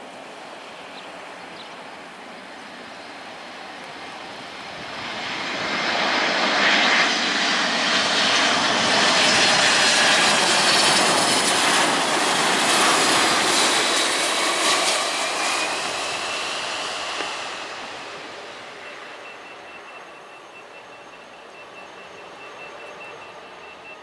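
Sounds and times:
jet engines passing low: 0.0 - 24.0
faint high whine: 14.2 - 24.0.

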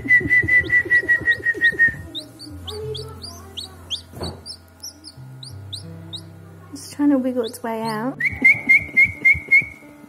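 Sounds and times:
pulsing whistled tone: 0.0 - 2.1
chick peeping: 0.0 - 6.3, 7.4 - 9.8
background music: 0.1 - 10.0.

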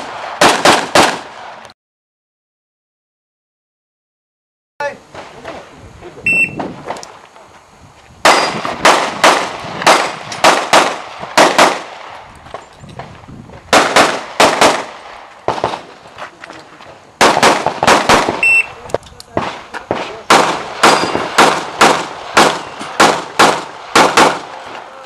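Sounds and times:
pistol shots: 0.0 - 1.6, 8.2 - 12.2, 13.7 - 15.9, 17.2 - 24.8
short high electronic beep: 6.3 - 6.6, 18.4 - 18.8.

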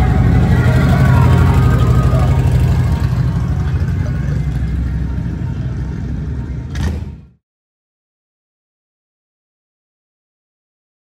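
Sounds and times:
motorcycle engine rumbling: 0.0 - 7.4.

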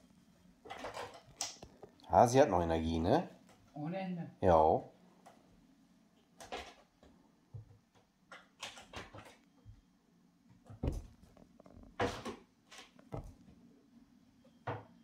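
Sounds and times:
dull thumps and knocks: 10.6 - 12.4.

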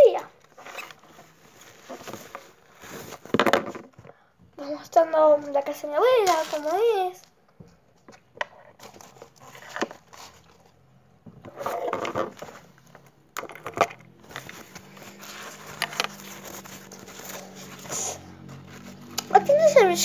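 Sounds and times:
rummaging through backpack: 0.4 - 4.1, 11.4 - 19.6.

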